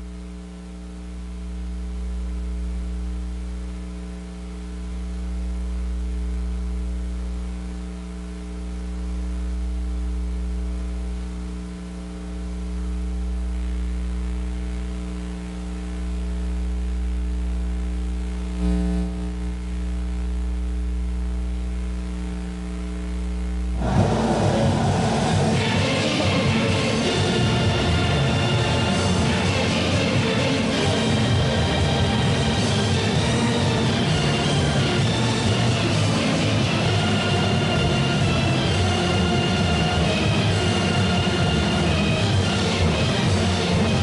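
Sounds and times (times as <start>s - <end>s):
electrical mains hum and buzz: 0.0s - 44.0s
electrical crackle: 11.2s - 24.0s.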